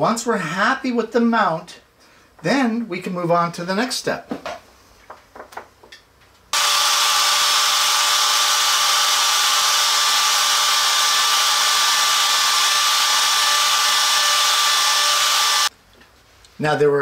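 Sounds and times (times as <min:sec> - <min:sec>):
router whining: 0:06.6 - 0:15.7.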